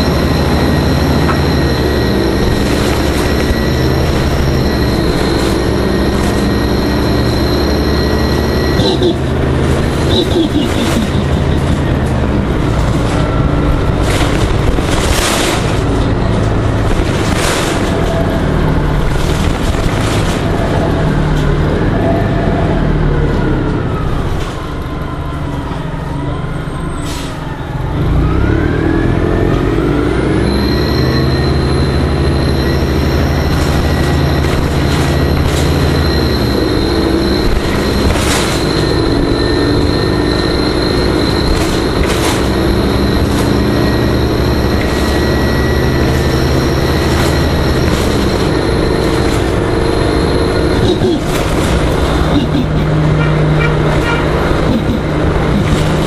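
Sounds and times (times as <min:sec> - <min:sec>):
high steady whine: 0:00.0 - 0:20.8
bus engine and drivetrain whine: 0:00.0 - 0:56.0
rattles and clicks: 0:08.8 - 0:21.7, 0:33.0 - 0:56.0.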